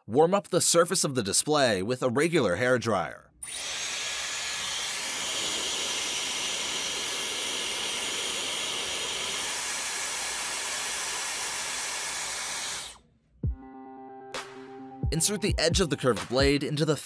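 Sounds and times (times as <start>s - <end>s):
hair dryer running: 3.4s - 13.0s.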